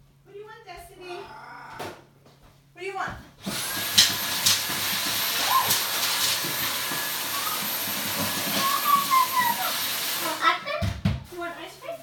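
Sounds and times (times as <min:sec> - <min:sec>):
appliance motor whining: 0:03.4 - 0:10.4.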